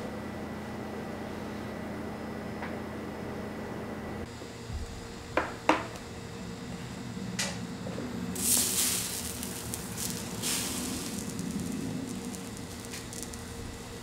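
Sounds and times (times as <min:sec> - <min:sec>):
food sizzling on a griddle: 0:08.4 - 0:14.0.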